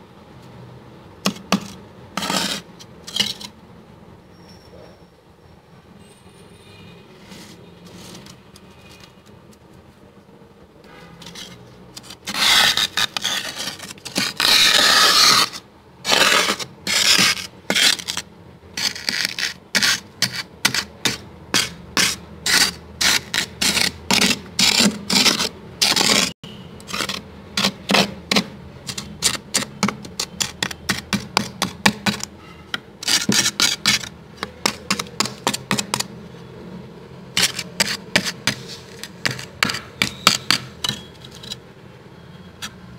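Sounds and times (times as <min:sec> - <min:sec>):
scraping frost in a freezer: 0:01.3 - 0:03.6, 0:11.2 - 0:36.1, 0:37.3 - 0:41.6.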